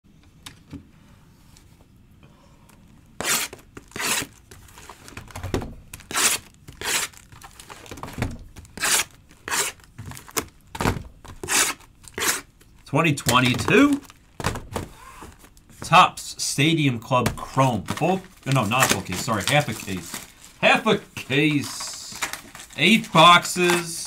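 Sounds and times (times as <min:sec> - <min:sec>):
plastic wrapping tearing and crinkling: 0:03.2 - 0:10.6, 0:18.0 - 0:20.6, 0:21.6 - 0:24.0.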